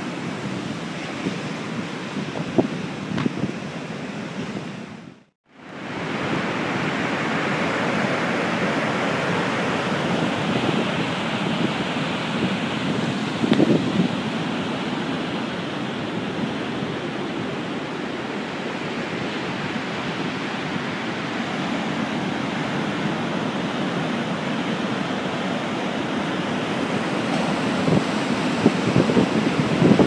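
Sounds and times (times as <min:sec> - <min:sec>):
sea surf breaking: 0:00.0 - 0:30.0
wind gust on microphone: 0:00.0 - 0:30.0.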